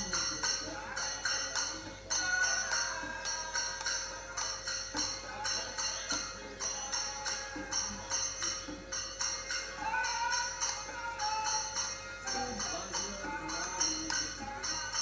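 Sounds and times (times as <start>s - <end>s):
bells and metal percussion jangling: 0.0s - 15.0s.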